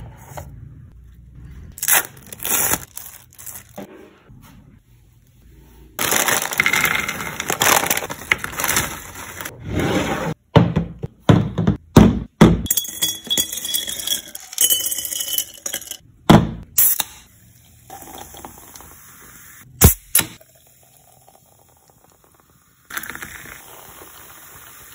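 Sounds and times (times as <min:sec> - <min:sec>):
ice cubes clinking into glass jars: 0:06.0 - 0:09.5, 0:12.7 - 0:16.0.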